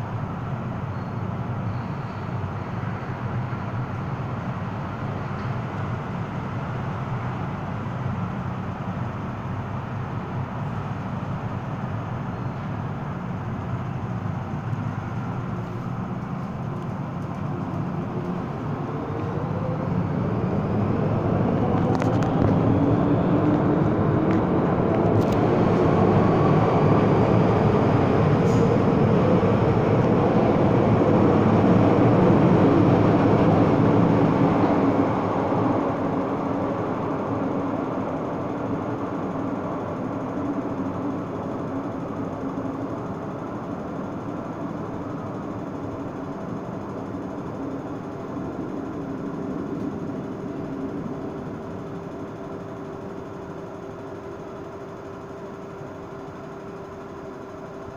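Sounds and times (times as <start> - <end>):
train low hum: 0.0 - 57.9
wheel-on-rail rumble: 0.0 - 57.9
brief sharp squeaks: 0.9 - 2.7
traction motor whine: 14.2 - 57.9.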